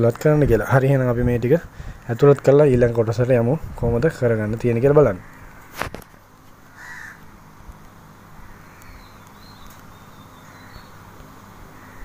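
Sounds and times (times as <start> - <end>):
low steady hum: 0.0 - 12.0
bird calling faintly: 4.7 - 12.0.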